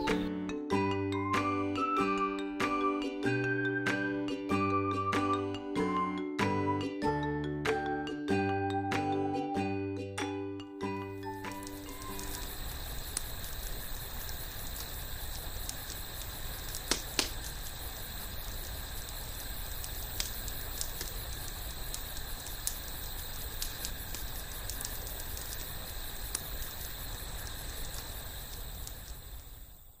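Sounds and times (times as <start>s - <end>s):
campfire crackling and popping: 0.0s - 0.3s, 10.8s - 30.0s
night insects chirring: 0.0s - 30.0s.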